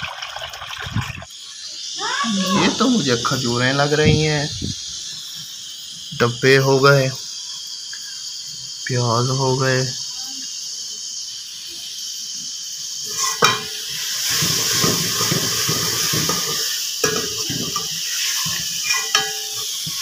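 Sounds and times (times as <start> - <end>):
steady high hiss: 1.2 - 20.0
metal colander knocks: 14.8 - 20.0.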